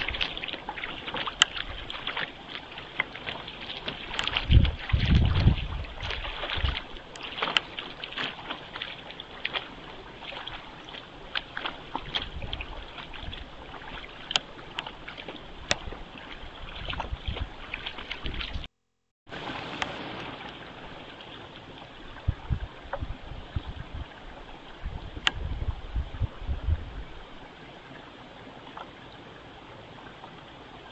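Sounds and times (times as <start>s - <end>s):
deer splashing through water: 0.0s - 18.7s
rain on pond water: 0.0s - 23.3s.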